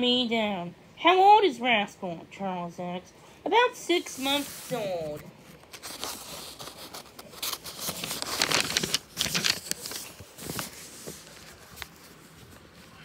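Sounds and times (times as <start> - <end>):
book page turning: 4.2 - 13.0.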